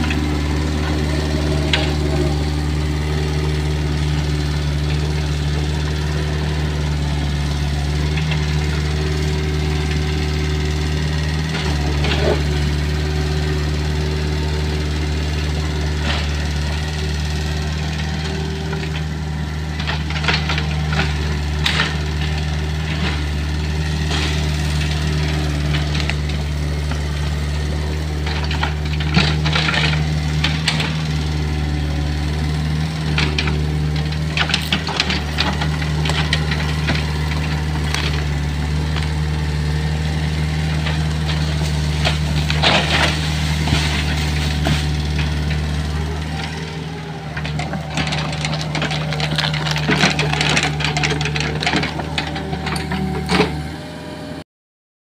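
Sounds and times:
excavator diesel engine running: 0:00.0 - 0:54.4
sharp cracks of woody debris: 0:47.4 - 0:52.8.

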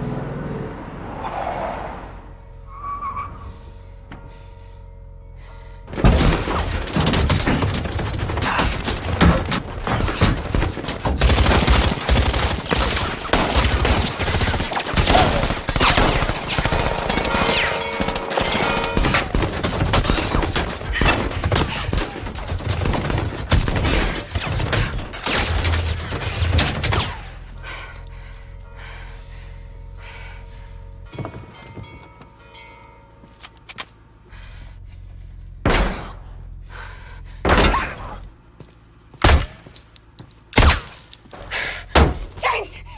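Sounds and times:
bullets hitting a car: 0:39.2 - 0:42.4.

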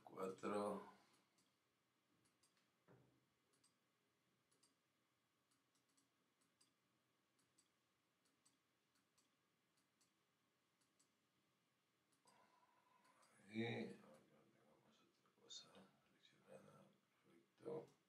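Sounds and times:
computer mouse clicks: 0:01.1 - 0:01.6, 0:02.2 - 0:02.7, 0:03.5 - 0:03.8, 0:04.5 - 0:04.8, 0:05.4 - 0:06.8, 0:07.4 - 0:10.2, 0:10.8 - 0:11.2, 0:12.1 - 0:13.4.

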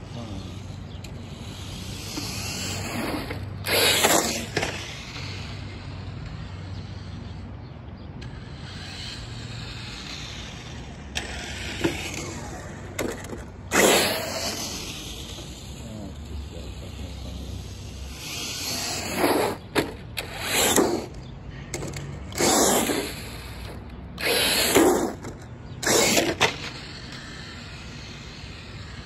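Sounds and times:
rc truck speeding past: 0:00.0 - 0:29.0
sharp clicks and knocks: 0:21.7 - 0:22.3.

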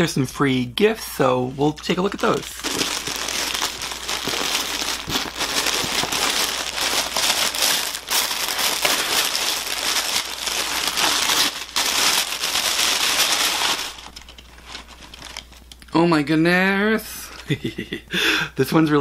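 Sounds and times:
packaging wrap crinkling: 0:01.5 - 0:15.8.

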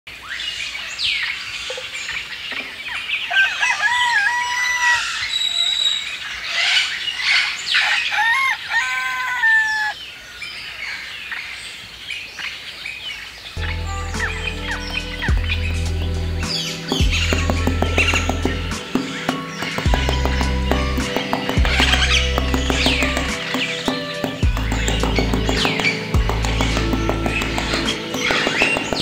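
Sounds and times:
rooster crowing: 0:03.3 - 0:05.2, 0:07.8 - 0:10.0
small birds chirping: 0:10.0 - 0:29.0.

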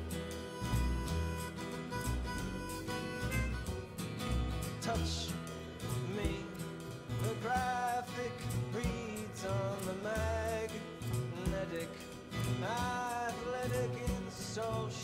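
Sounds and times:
strummed acoustic guitar: 0:00.0 - 0:15.0
upright bass: 0:00.0 - 0:15.0
man singing: 0:04.8 - 0:15.0.

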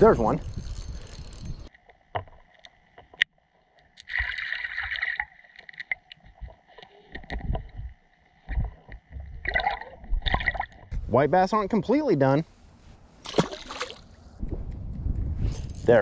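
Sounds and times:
underwater clicks and knocks: 0:05.6 - 0:11.0.

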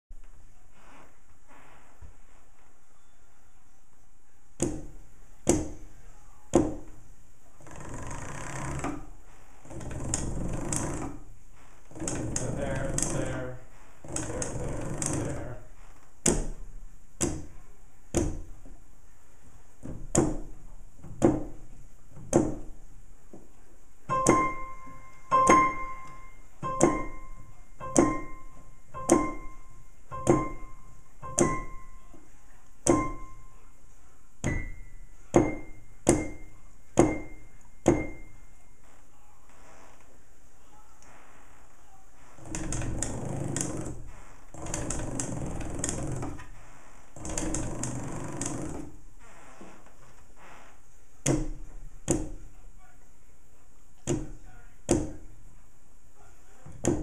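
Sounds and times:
piano keys clicking and thunking: 0:12.0 - 0:13.4, 0:24.1 - 0:33.5, 0:34.4 - 0:38.4.

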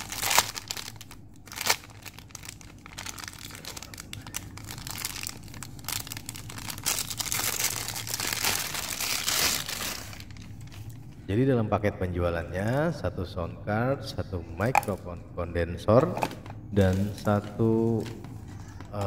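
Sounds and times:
plastic bag tearing: 0:00.0 - 0:11.0
plastic bag crinkling: 0:00.0 - 0:11.1, 0:16.2 - 0:19.0.

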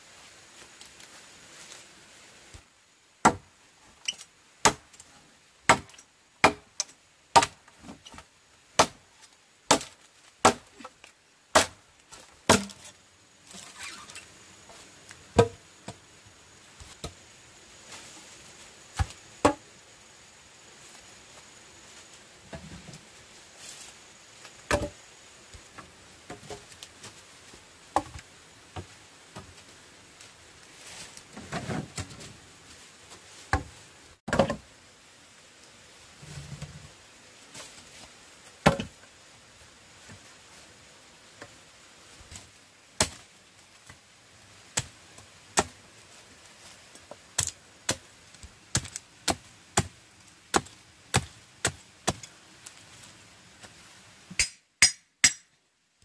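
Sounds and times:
sharp chopping strikes: 0:05.7 - 0:06.7, 0:09.7 - 0:10.7, 0:12.5 - 0:12.8.

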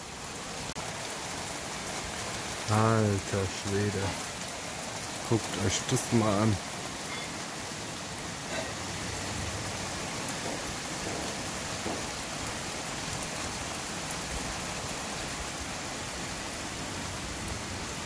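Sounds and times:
heavy rain pouring: 0:00.0 - 0:18.0.

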